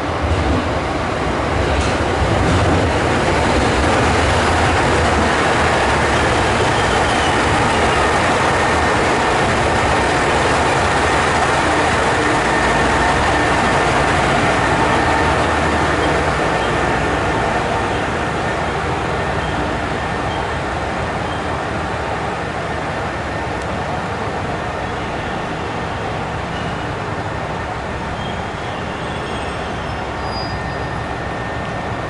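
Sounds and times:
diesel train engine rumble: 0.0 - 32.0
train wheels on rails: 0.0 - 32.0.

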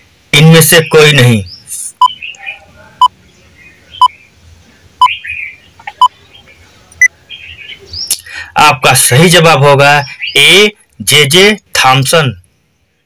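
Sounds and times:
faint chirping: 0.6 - 8.6.

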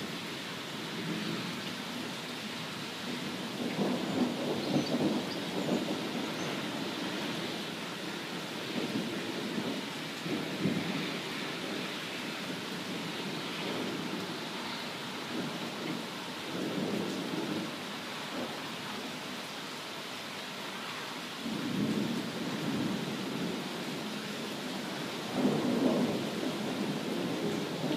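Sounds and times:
heavy rain: 0.0 - 27.9
thunder rumbles: 3.3 - 7.5, 8.1 - 13.0, 24.9 - 27.9.

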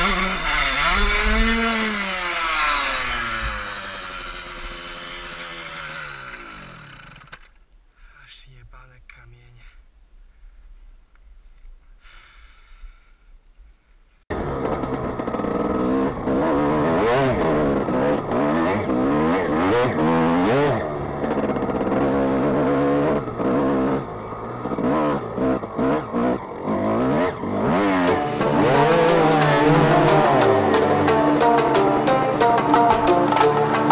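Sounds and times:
dirt bike engine revving: 0.0 - 7.4, 14.3 - 33.9.

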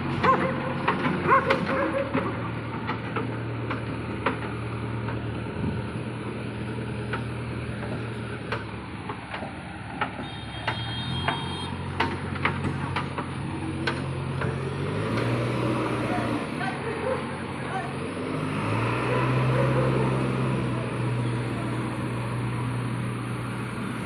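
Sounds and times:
diesel engine running: 0.0 - 24.0
knocks and rattles: 0.1 - 5.3, 7.1 - 15.4.

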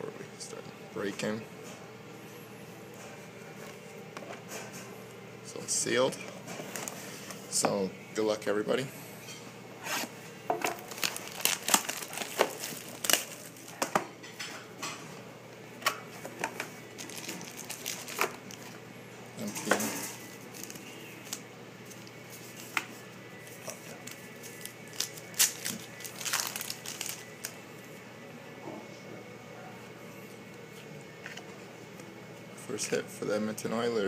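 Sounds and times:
plastic wrap crinkling and tearing: 10.8 - 13.8, 17.0 - 18.8, 20.4 - 21.4, 23.7 - 27.6.

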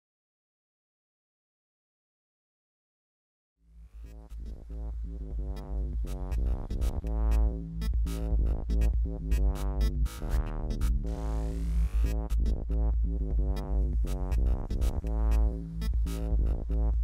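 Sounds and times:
electronic music: 4.0 - 17.0.

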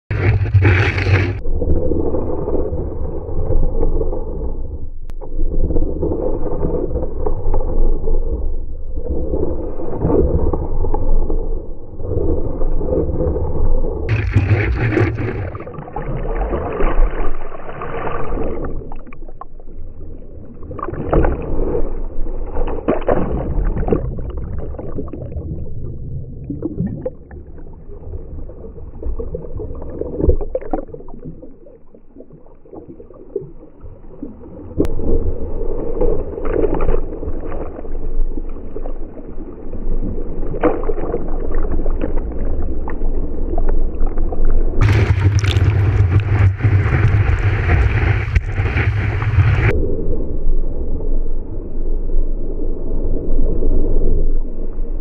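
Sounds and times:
wax scraping on surfboard: 0.1 - 1.4, 14.1 - 15.7
water splashing against board: 0.1 - 4.4, 9.3 - 49.7.

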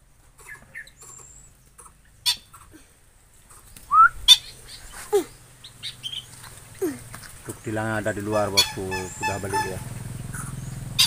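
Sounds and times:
birds chirping and calling: 0.2 - 11.0.

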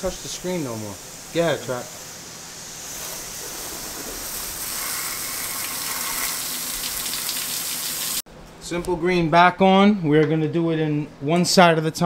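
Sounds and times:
garden hose spraying water: 0.0 - 8.2.

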